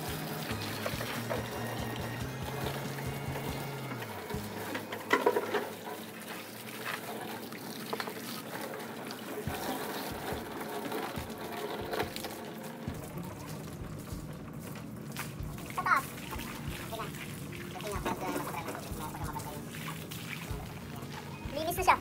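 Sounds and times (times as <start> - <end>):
hose water spraying and splashing: 0.0 - 22.0.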